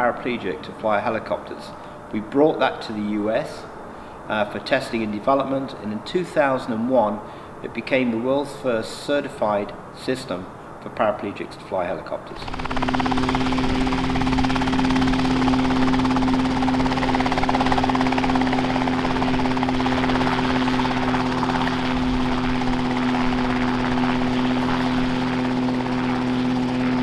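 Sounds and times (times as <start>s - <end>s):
helicopter engine drone: 12.4s - 27.0s
helicopter rotor chop: 12.4s - 27.0s.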